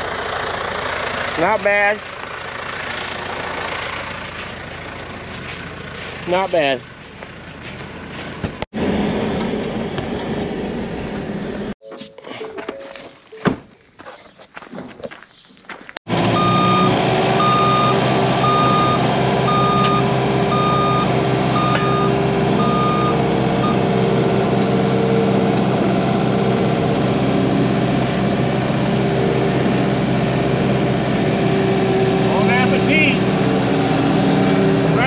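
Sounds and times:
diesel engine running under load: 0:00.0 - 0:11.8, 0:16.1 - 0:35.0
backup alarm beeping: 0:16.4 - 0:23.9.

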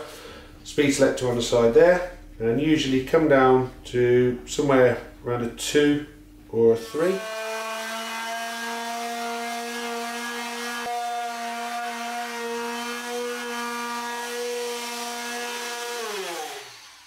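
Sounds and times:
oscillating multi-tool buzzing: 0:06.8 - 0:17.0.

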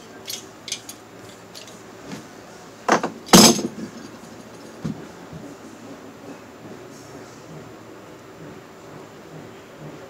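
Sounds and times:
loud ringing metal clanks: 0:02.9 - 0:04.8.

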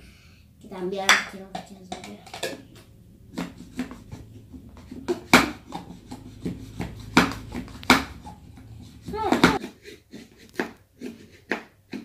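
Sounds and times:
plastic jar clacking and knocking: 0:01.1 - 0:09.6.

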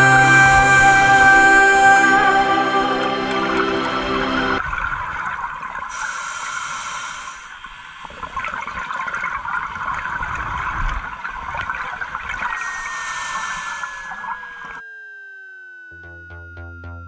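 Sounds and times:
falling synth tone: 0:00.0 - 0:04.6, 0:12.6 - 0:17.0
regulator inhale hiss: 0:05.9 - 0:07.6, 0:12.9 - 0:14.1
exhaled bubbles gurgling: 0:08.0 - 0:12.7.

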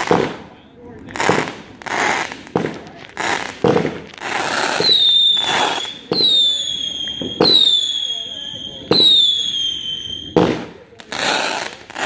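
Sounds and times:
fireworks bangs and crackling: 0:00.0 - 0:12.0
high firework whistle: 0:04.3 - 0:10.6.

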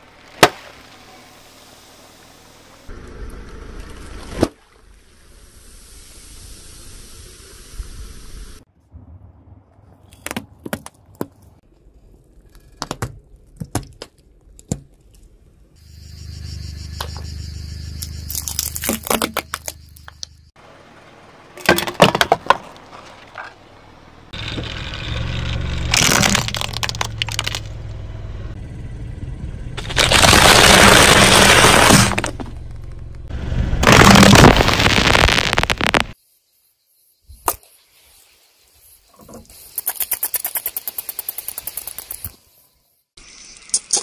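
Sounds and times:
objects crunching under car tyre: 0:18.1 - 0:20.4, 0:21.6 - 0:23.7, 0:24.3 - 0:27.9, 0:29.8 - 0:36.2.

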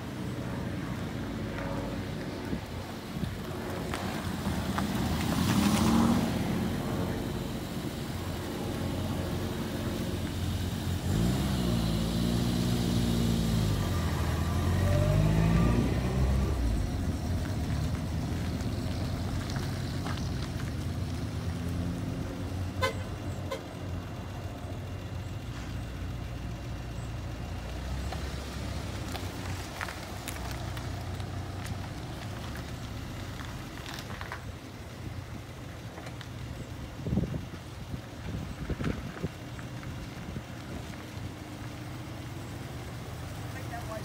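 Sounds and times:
low engine rumble: 0:00.0 - 0:44.0
car accelerating away: 0:03.8 - 0:22.7
car horn toot: 0:22.8 - 0:23.7.

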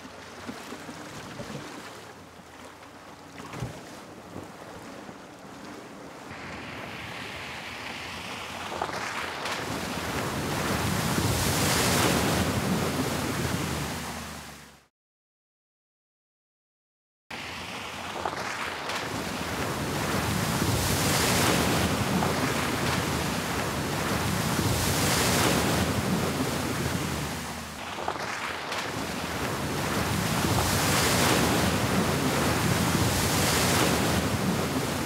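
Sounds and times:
water rushing and spraying: 0:05.2 - 0:14.8, 0:17.4 - 0:35.0.

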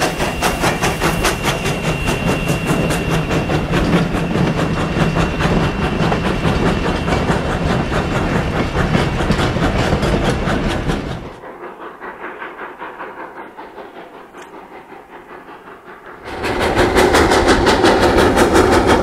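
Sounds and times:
distant train: 0:00.0 - 0:19.0
high steady squeal: 0:00.0 - 0:19.0
train wheels clattering on rails: 0:00.0 - 0:19.0.

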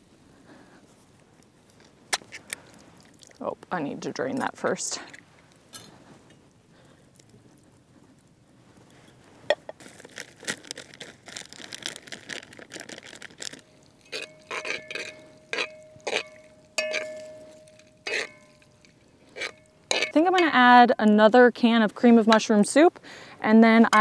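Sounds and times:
corn pouring into skillet: 0:09.8 - 0:18.2
metal spoon scraping iron pan: 0:14.0 - 0:20.5.

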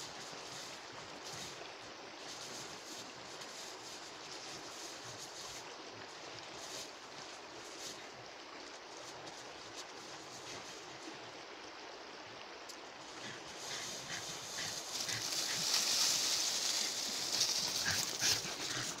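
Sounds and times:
steady hiss: 0:00.0 - 0:19.0
footsteps crunching through snow: 0:13.3 - 0:19.0.

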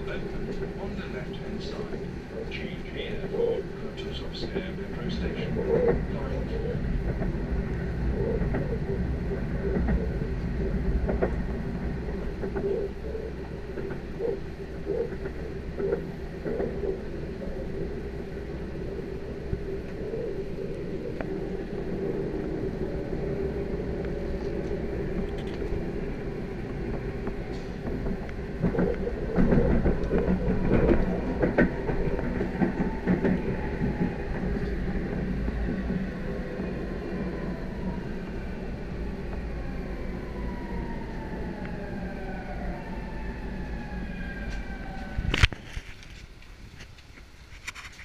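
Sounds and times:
wheels clacking over rails: 0:00.0 - 0:37.2
electric train running hum: 0:00.0 - 0:47.7.

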